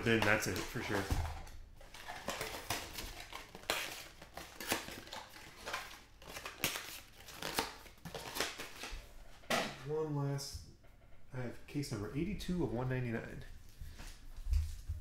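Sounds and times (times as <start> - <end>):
wrappers crinkling: 0.0 - 8.9.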